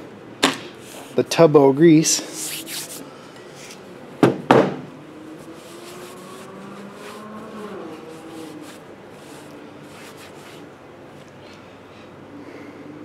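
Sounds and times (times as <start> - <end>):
hands rubbing on rag: 2.2 - 3.8, 5.3 - 11.3
faint wavering hum: 4.9 - 13.0.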